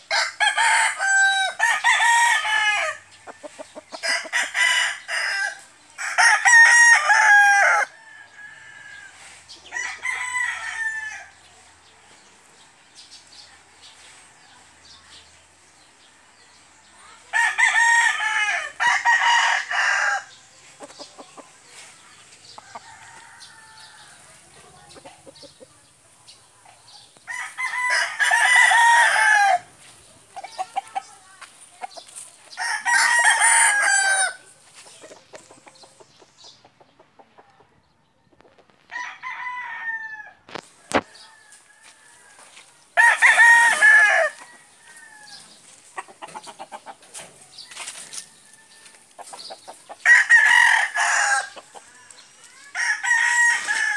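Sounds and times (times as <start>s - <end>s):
rooster crowing: 0.1s - 3.0s, 4.0s - 9.1s, 27.3s - 29.7s, 32.6s - 34.4s, 38.9s - 40.4s, 41.2s - 45.4s, 50.0s - 51.6s, 52.6s - 53.9s.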